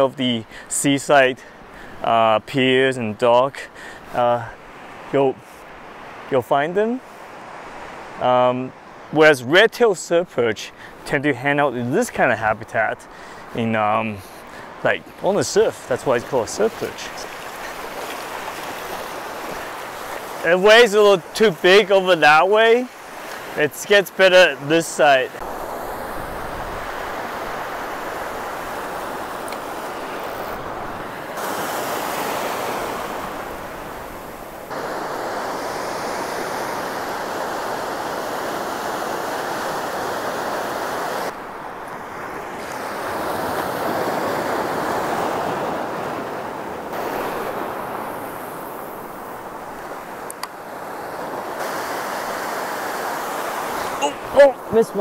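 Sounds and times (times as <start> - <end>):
ocean surf breaking: 0.0 - 55.0.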